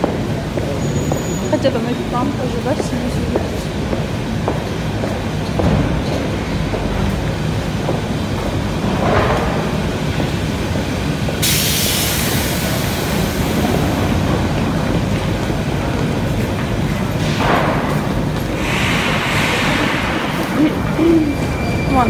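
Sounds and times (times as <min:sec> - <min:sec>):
hiss: 0:11.4 - 0:13.8, 0:18.5 - 0:20.6.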